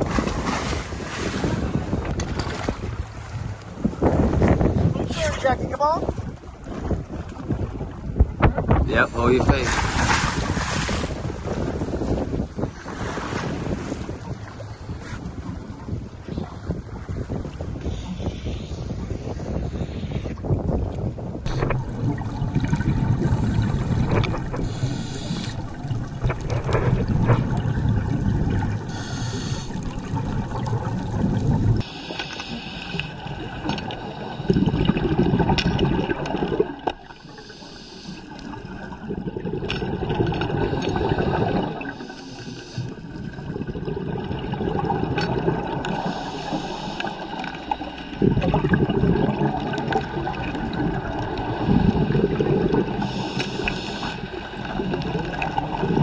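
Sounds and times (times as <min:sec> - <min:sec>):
exhaled bubbles gurgling: 0:06.2 - 0:56.0
regulator hissing inhalations: 0:24.6 - 0:25.6, 0:28.9 - 0:29.8, 0:31.8 - 0:33.2, 0:37.1 - 0:38.4, 0:42.0 - 0:43.0, 0:46.0 - 0:48.2, 0:53.0 - 0:54.4.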